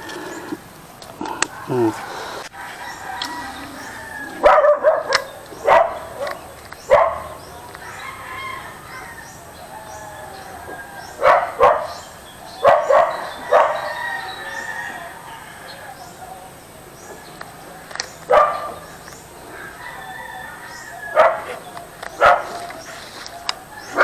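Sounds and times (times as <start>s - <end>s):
small birds chirping: 0.0s - 24.0s
dog barking: 4.4s - 7.4s, 11.2s - 12.0s, 12.6s - 14.1s, 18.3s - 18.9s, 21.1s - 21.6s, 22.2s - 22.8s.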